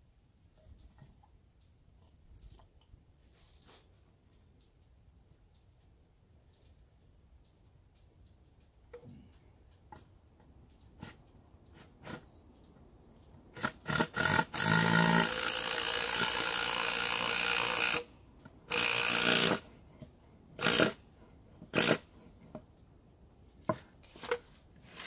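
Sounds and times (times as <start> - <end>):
cordless drill running: 18.7 - 19.6.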